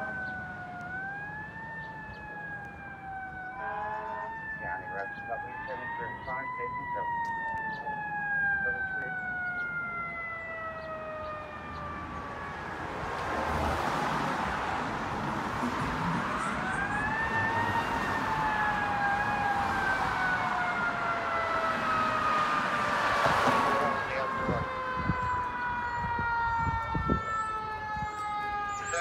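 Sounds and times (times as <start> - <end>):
fire engine siren: 0.0 - 29.0.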